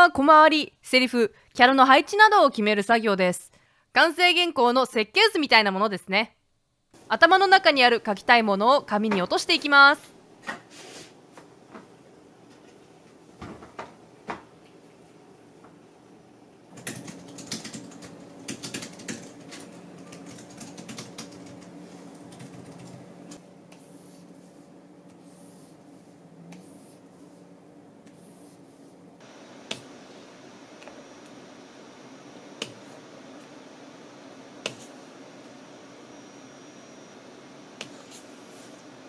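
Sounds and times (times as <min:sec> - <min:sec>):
faint steady hum: 0:11.2 - 0:39.0.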